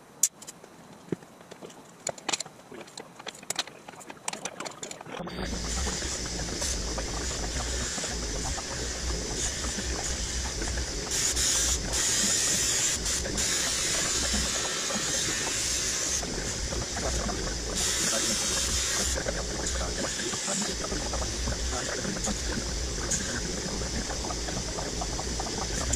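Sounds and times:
bench grinder humming: 5.3s - 25.9s
metal rod grinding hiss: 5.3s - 25.9s.

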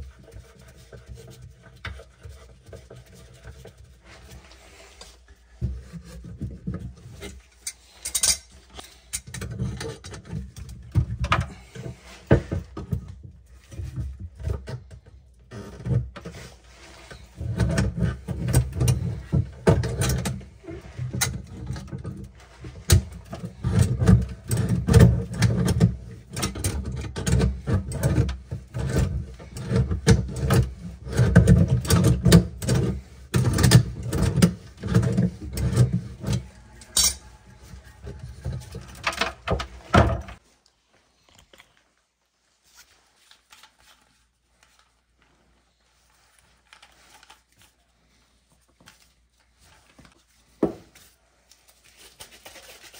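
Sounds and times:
pliers clicking and scraping metal: 7.6s - 10.0s, 36.8s - 37.3s.

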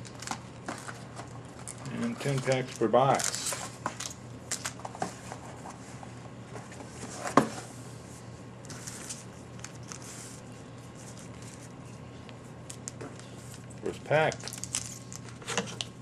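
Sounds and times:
foil packs rustling: 0.0s - 4.8s, 13.8s - 15.5s
faint steady hum: 0.0s - 16.0s.

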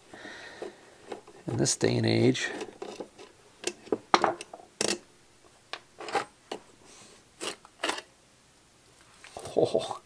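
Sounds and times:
metal parts clicking and knocking: 2.4s - 5.0s.

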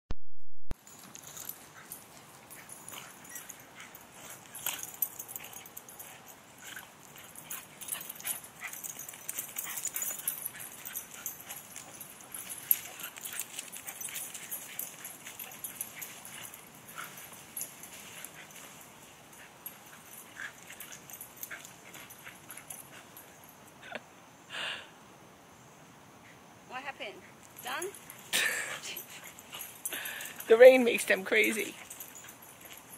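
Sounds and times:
dogs whimpering and yipping: 1.2s - 23.5s.

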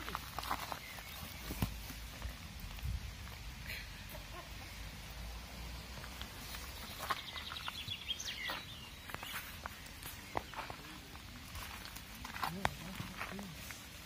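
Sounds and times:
songbird trill: 0.0s - 2.4s, 6.0s - 13.5s
faint outdoor background noise: 0.0s - 14.0s.

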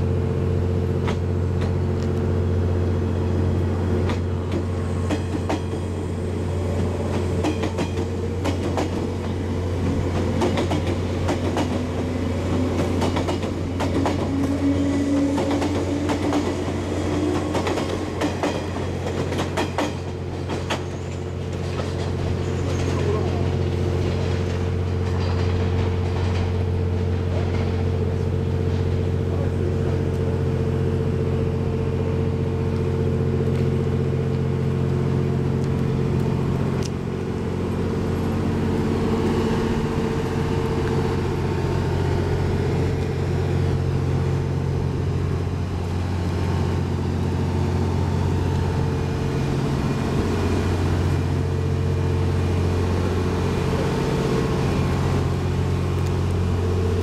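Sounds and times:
train diesel generators idling: 0.0s - 57.0s.

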